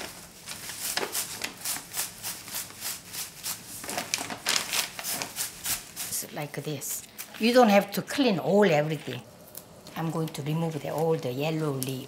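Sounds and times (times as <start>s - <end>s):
knife scraping leafy greens: 0.0s - 6.4s.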